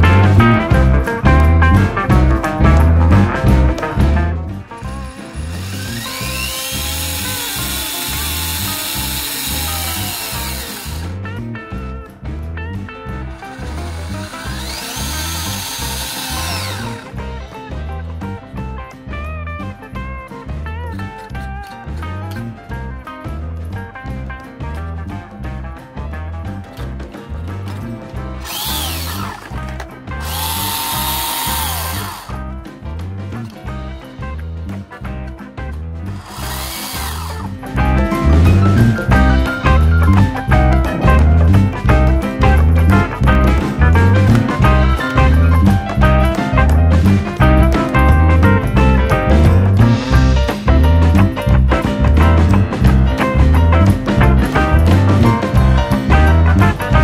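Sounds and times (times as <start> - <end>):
rock music: 0.0 - 57.0
toy truck motor whirring: 4.7 - 11.1, 13.3 - 17.2, 28.4 - 32.4, 36.1 - 37.8.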